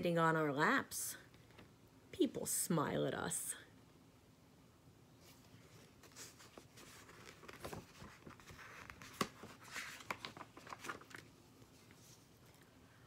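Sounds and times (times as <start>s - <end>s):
paper page rustling: 5.2s - 12.6s.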